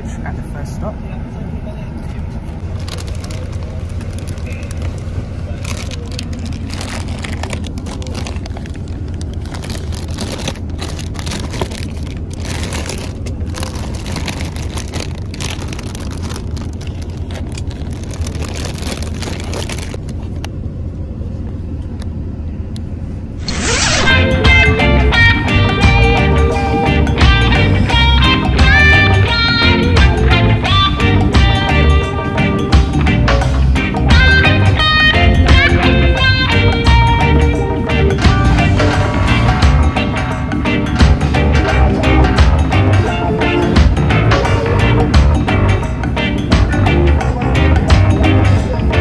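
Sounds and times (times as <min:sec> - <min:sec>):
coach engine drone: 0:00.0 - 0:49.0
snack packets crinkling: 0:02.6 - 0:20.4
guitar music: 0:23.7 - 0:49.0.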